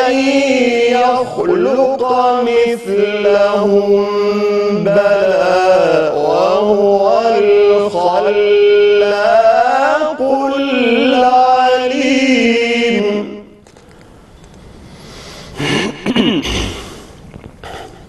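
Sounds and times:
man chanting: 0.0 - 13.6.

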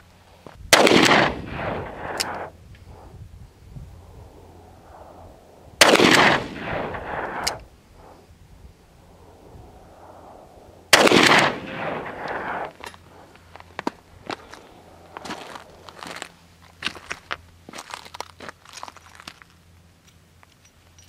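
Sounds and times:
revolver gunshots with echo: 0.7 - 3.1, 4.8 - 8.2, 9.2 - 12.8.

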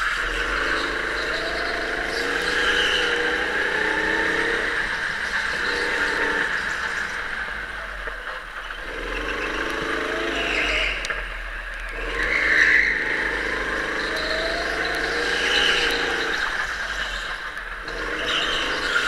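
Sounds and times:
go-kart engine: 0.0 - 19.0
tyre squeal: 12.1 - 19.0.

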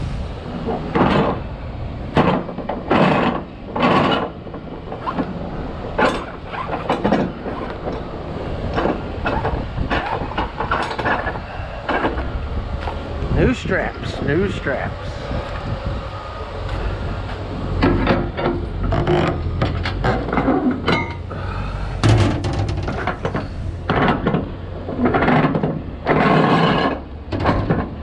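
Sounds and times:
vehicle engine rumbling: 0.0 - 28.0
knocks and rattles: 0.6 - 1.5, 2.1 - 13.0, 17.8 - 21.4, 22.0 - 28.0.

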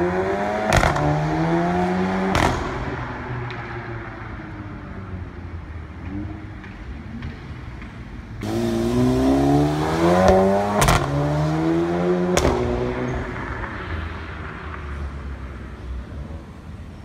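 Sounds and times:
car engine accelerating: 8.4 - 15.6.

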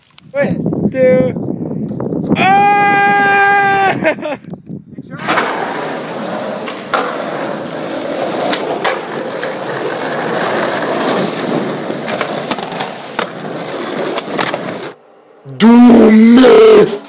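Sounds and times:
skateboard wheels rolling on concrete: 5.1 - 17.0
skateboard clacks: 5.2 - 15.0.

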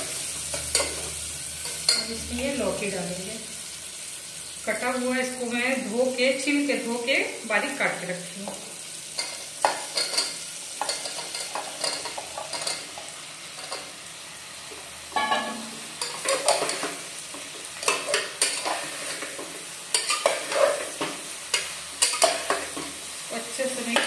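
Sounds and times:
faint sizzle: 0.0 - 24.0
spatula scraping inside pot: 17.8 - 21.1.

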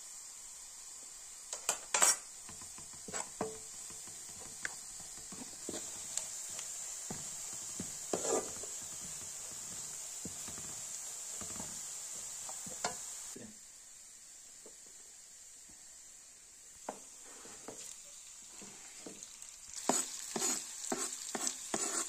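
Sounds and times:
steady high hiss: 0.0 - 22.0
dishes and utensils clinking: 1.6 - 2.3.

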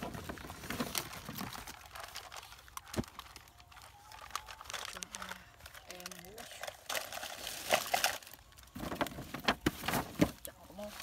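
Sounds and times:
cardboard and plastic packaging rustling: 0.0 - 11.0.

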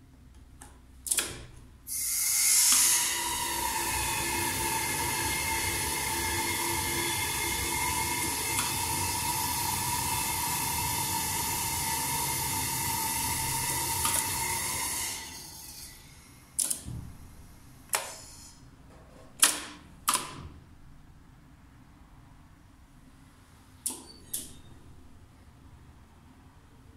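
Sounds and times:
hydraulic drive hiss and whine: 1.9 - 16.7, 17.9 - 18.6.

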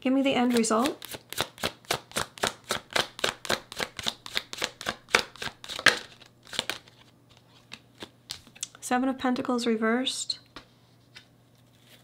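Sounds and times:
cards being shuffled: 0.4 - 8.7.

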